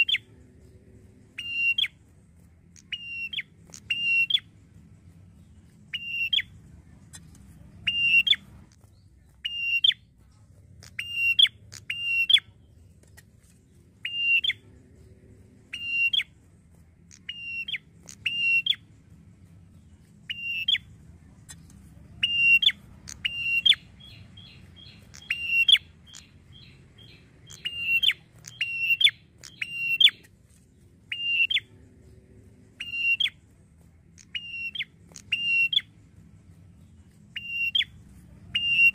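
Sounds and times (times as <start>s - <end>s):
bird chattering trill: 0.0s - 0.3s, 1.3s - 2.0s, 2.7s - 4.5s, 5.8s - 10.0s, 10.8s - 12.5s, 14.0s - 14.6s, 15.7s - 16.4s, 17.1s - 18.8s, 20.2s - 30.3s, 31.1s - 31.7s, 32.7s - 33.4s, 34.2s - 36.0s, 37.2s - 38.9s.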